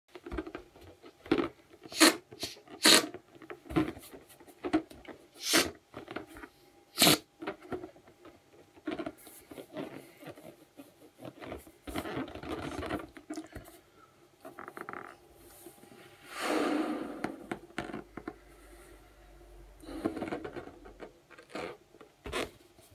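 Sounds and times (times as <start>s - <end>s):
balloon rubbing squeaks: 1.8s - 4.0s, 5.3s - 6.1s, 6.9s - 7.3s, 8.8s - 13.4s, 19.8s - 22.6s
breathing into balloon: 16.0s - 20.6s.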